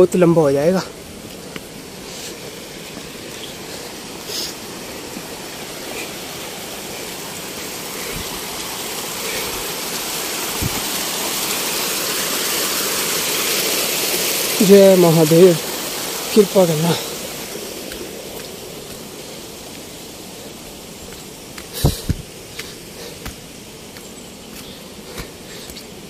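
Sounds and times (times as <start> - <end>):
rushing mountain water: 0.0 - 26.0.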